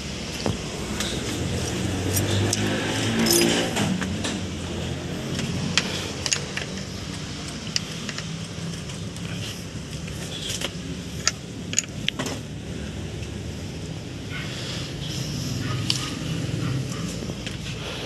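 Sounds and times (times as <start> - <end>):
steady low rumble: 0.0 - 18.0
metallic clicks of hand tools: 2.2 - 4.4, 5.3 - 9.3.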